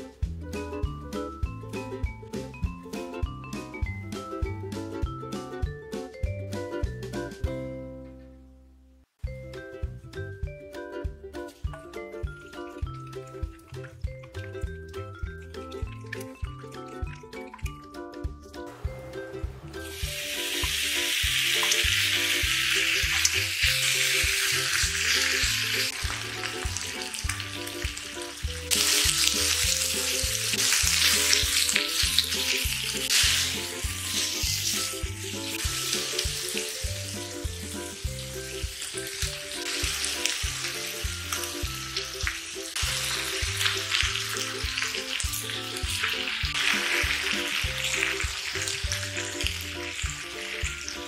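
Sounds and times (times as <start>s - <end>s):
background music with steady beat: 0.0s - 8.4s, 9.1s - 51.0s
spatula scraping: 19.8s - 36.8s
meat sizzling in a pan: 19.8s - 51.0s.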